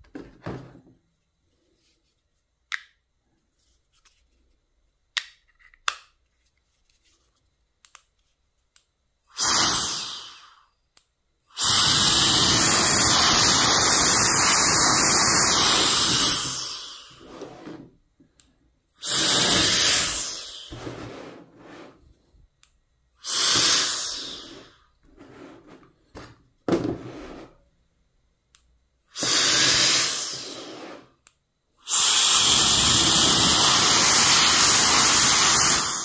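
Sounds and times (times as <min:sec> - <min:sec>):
electric fan blowing air: 0:11.6 - 0:17.7, 0:31.9 - 0:36.0.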